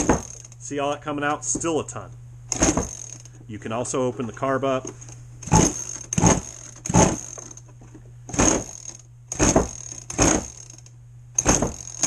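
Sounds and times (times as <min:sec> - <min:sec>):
engine pull-start cranking: 0:00.0 - 0:00.6, 0:02.5 - 0:03.4, 0:05.4 - 0:07.7, 0:08.3 - 0:12.0.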